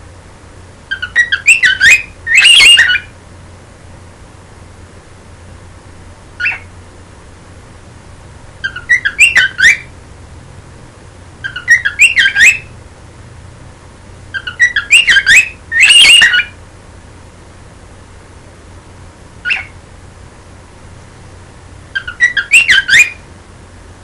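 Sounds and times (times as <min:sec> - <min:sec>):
cockatiel chirp: 0:00.9 - 0:03.1, 0:06.4 - 0:06.7, 0:08.6 - 0:09.9, 0:11.4 - 0:12.7, 0:14.3 - 0:16.6, 0:19.4 - 0:19.8, 0:21.9 - 0:23.2
cockatiel warbling whistles: 0:00.9 - 0:03.1, 0:06.4 - 0:06.7, 0:08.6 - 0:09.9, 0:11.4 - 0:12.7, 0:14.4 - 0:16.6, 0:19.4 - 0:19.8, 0:21.9 - 0:23.2
cockatiel long call: 0:00.9 - 0:03.2, 0:06.4 - 0:06.7, 0:08.6 - 0:09.9, 0:11.4 - 0:12.7, 0:14.3 - 0:16.6, 0:19.4 - 0:19.8, 0:21.9 - 0:23.3.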